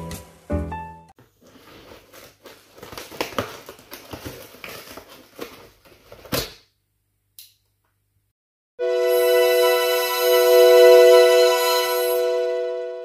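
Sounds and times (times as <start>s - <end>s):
tape tearing: 1.4s - 6.6s.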